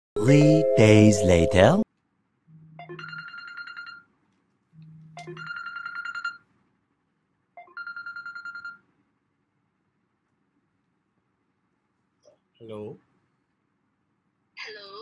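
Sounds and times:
mobile phone ringing: 2.5s - 4.1s, 4.8s - 6.4s, 7.6s - 8.8s.

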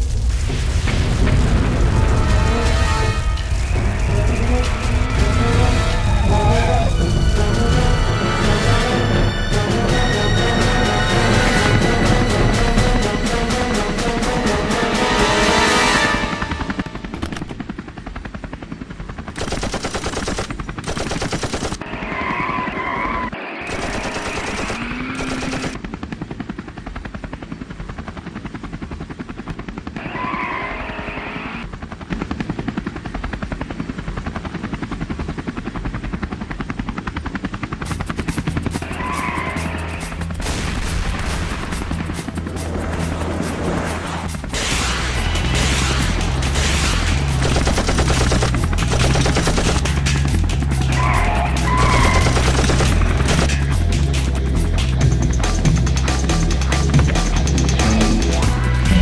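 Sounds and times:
helicopter rotor noise: 1.3s - 59.0s
music: 1.4s - 17.2s, 37.4s - 59.0s
automatic gunfire: 19.3s - 21.9s, 23.6s - 25.8s, 46.6s - 50.1s, 51.8s - 53.7s.

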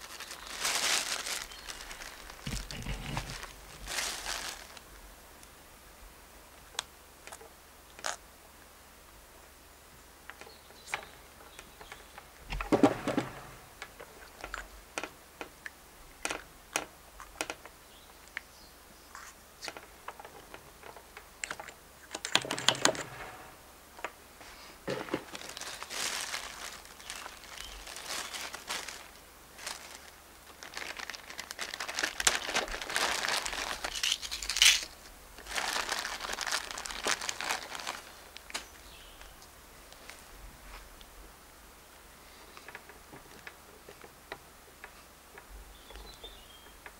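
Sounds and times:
plastic bag crinkling: 0.0s - 4.9s, 24.9s - 39.0s
rustles: 0.0s - 5.6s, 10.2s - 46.9s.

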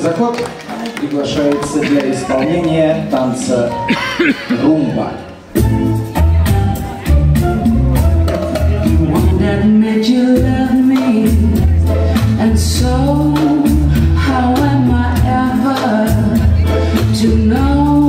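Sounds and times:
latin dance music with singing: 0.0s - 18.0s
percussion beat: 5.5s - 18.0s.

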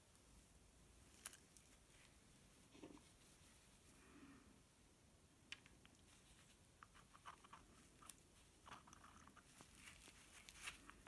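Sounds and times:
gloved hands rustling: 6.0s - 11.0s.

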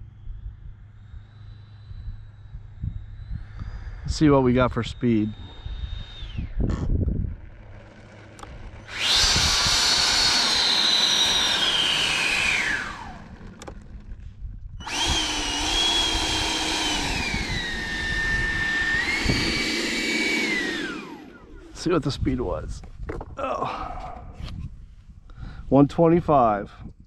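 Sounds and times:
electric ducted fan whining: 0.0s - 27.0s.

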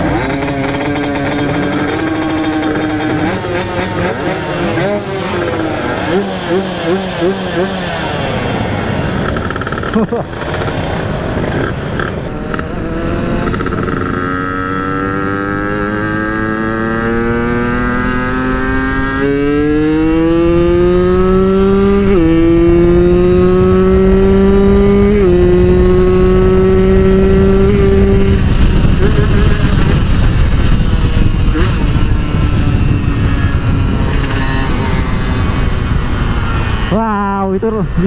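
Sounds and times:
motorcycle engine accelerating: 0.0s - 38.0s
wind rush on microphone: 17.4s - 38.0s.

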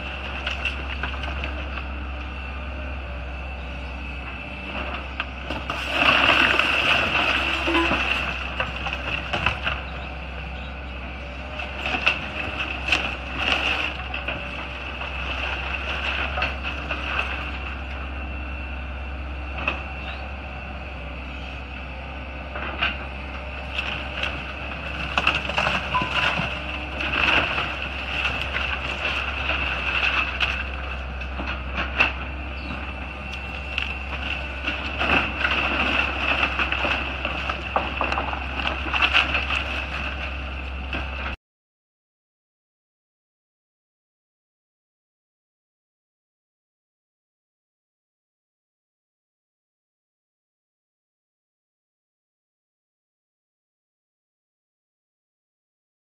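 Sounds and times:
excavator diesel engine whining: 0.0s - 41.4s
timber splintering and debris crashing: 5.5s - 9.8s, 23.7s - 32.2s, 33.6s - 40.4s.

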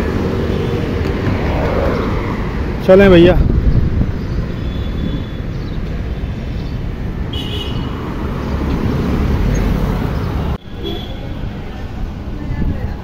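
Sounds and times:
light traffic: 0.0s - 13.0s
wind rumbling on microphone: 0.8s - 5.9s, 11.5s - 13.0s.

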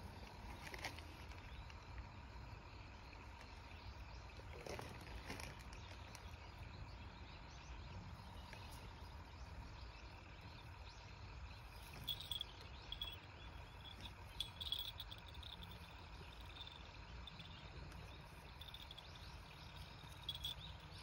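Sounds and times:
insects chirping: 0.0s - 21.0s
low steady rumble: 6.3s - 21.0s.

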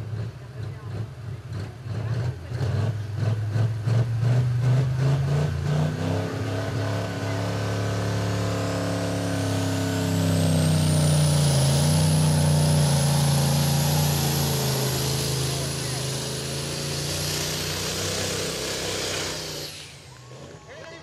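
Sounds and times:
truck diesel engine pulling under load: 0.0s - 21.0s
turbocharger whine: 4.9s - 21.0s.

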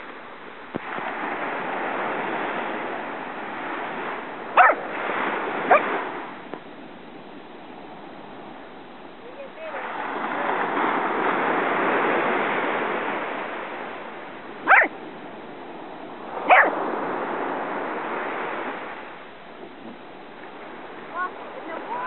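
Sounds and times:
surf washing in: 0.0s - 22.0s
dog barking: 4.6s - 4.9s, 5.7s - 5.9s, 14.6s - 14.9s, 16.4s - 16.8s.

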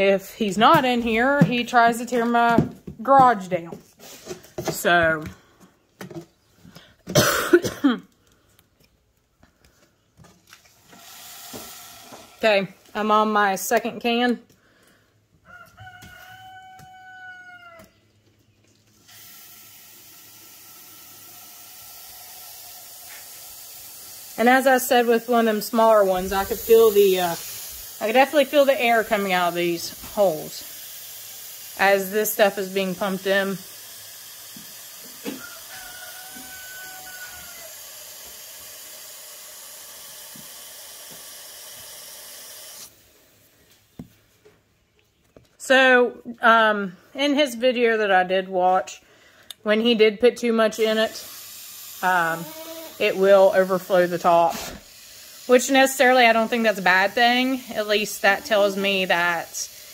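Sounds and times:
foam spraying hiss: 10.9s - 12.4s, 19.0s - 43.0s, 51.0s - 59.9s
rooster crowing: 15.4s - 18.0s, 35.2s - 37.8s.

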